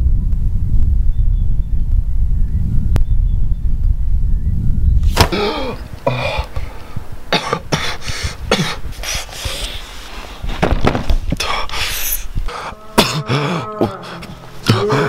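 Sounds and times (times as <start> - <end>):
wind rumbling on microphone: 0.0 - 14.9
man groaning: 5.2 - 6.8, 11.4 - 15.0
man coughing and gasping: 5.2 - 9.4, 11.4 - 15.0.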